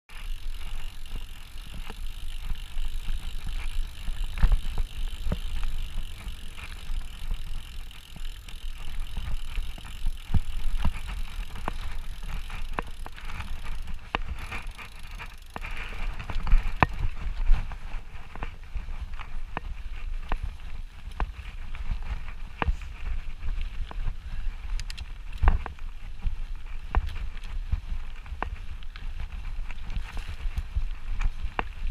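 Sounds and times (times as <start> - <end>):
bike knocks and rattles: 0.1 - 24.1
bike tyres rumbling on dirt: 0.1 - 31.9.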